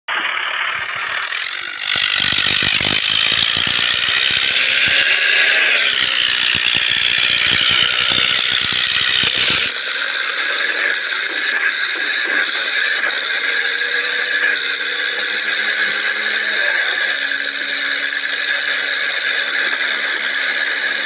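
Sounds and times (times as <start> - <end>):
high whir: 0.1 - 21.0
toy wheels ratcheting clatter: 0.1 - 21.0.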